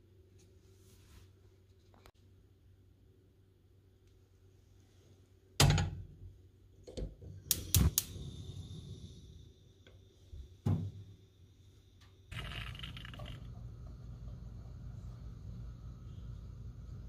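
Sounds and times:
igniter clicks: 0:06.9 - 0:08.4
gas flame hissing: 0:07.1 - 0:17.0.

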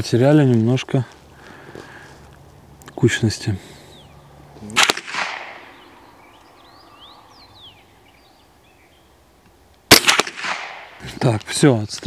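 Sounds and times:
rifle shot with echo: 0:04.7 - 0:05.8, 0:09.9 - 0:11.0
faint bird chirps: 0:05.6 - 0:09.2.

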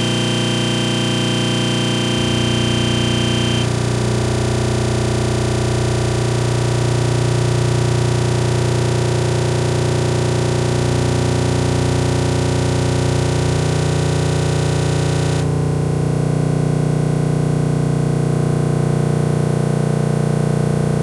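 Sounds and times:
dense electronic drone: 0:00.0 - 0:04.8.

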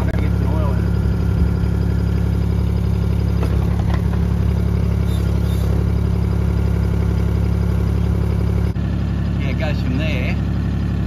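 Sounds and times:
excavator engine running: 0:00.0 - 0:11.0.

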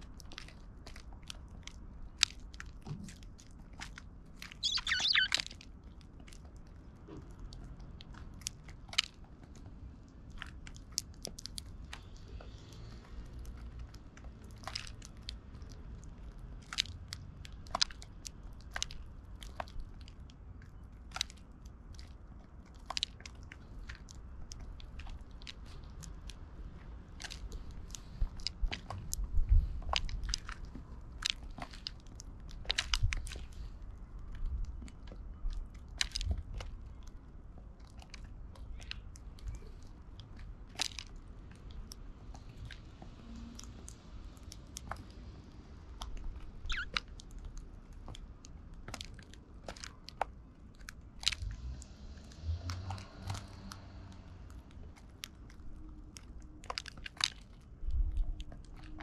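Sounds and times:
birds cracking seeds: 0:04.4 - 0:05.6, 0:46.1 - 0:47.4.

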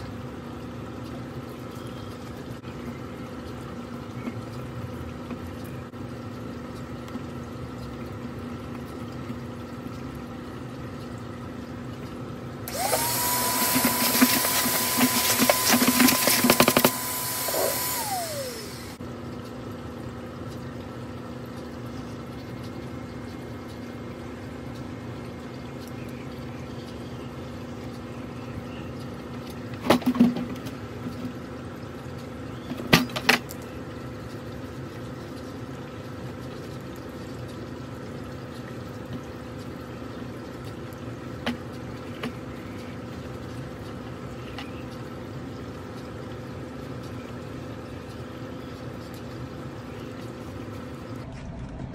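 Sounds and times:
steady background hum: 0:00.0 - 0:51.9
motor whine spinning down: 0:12.7 - 0:19.0.

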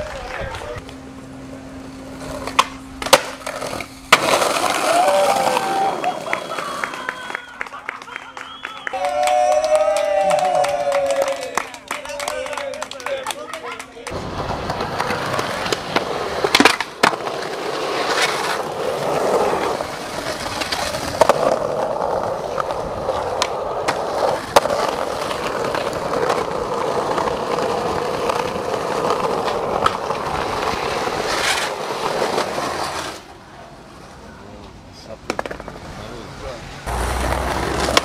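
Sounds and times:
skateboard wheels rolling: 0:00.0 - 0:12.8, 0:13.5 - 0:38.0
skateboard clacking on ground: 0:02.2 - 0:05.6, 0:11.9 - 0:33.3, 0:34.0 - 0:36.0, 0:36.9 - 0:38.0.

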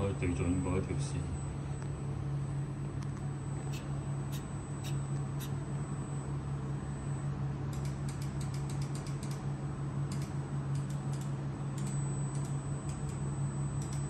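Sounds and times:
machine humming: 0:00.0 - 0:07.6
quick light clicks: 0:07.7 - 0:09.4, 0:10.1 - 0:13.2.

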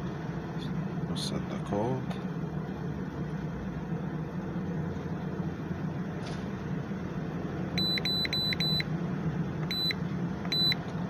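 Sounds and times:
steady low hum: 0:00.0 - 0:11.0
high electronic beeps: 0:07.8 - 0:08.8, 0:09.7 - 0:10.8.

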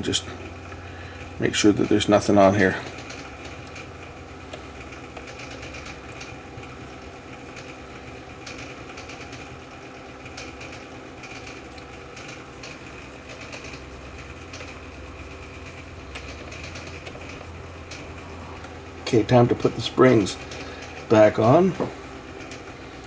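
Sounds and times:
low hum: 0:13.9 - 0:21.2.

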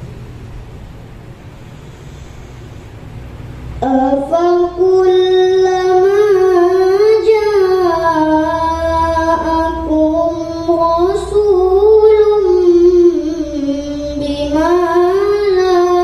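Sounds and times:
girl chanting melodic recitation: 0:03.8 - 0:16.0.

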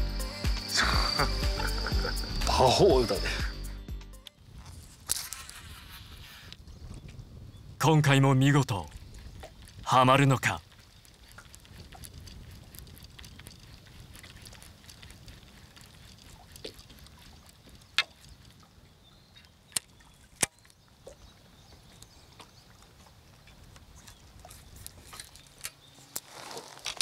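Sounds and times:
water lapping against hull: 0:08.4 - 0:26.8.

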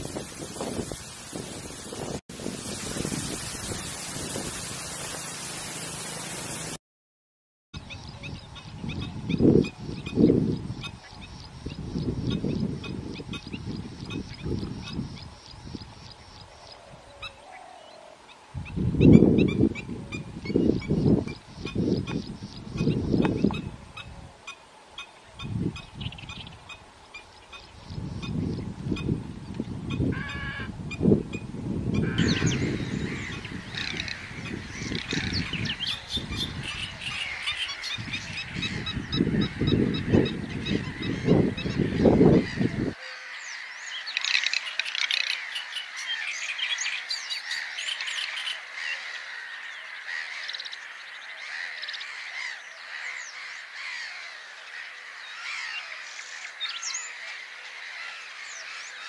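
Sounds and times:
birds chirping and trilling: 0:07.8 - 0:59.0
waterfowl honking: 0:30.1 - 0:30.7, 0:32.0 - 0:35.5.

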